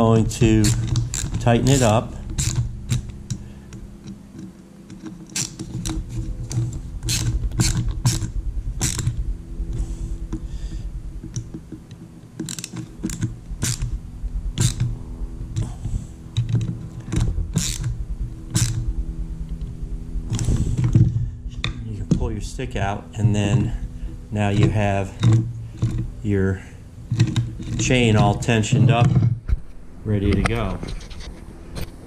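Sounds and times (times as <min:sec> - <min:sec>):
steady low hum: 0:00.0 - 0:32.0
ratcheting screwdriver clicking: 0:00.6 - 0:03.4, 0:04.0 - 0:09.2, 0:12.4 - 0:13.9, 0:14.6 - 0:14.9, 0:16.4 - 0:18.8.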